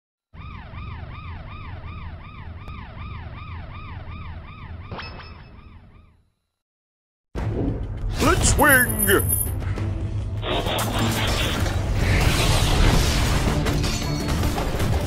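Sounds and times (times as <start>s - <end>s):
siren wailing: 0.3s - 6.3s.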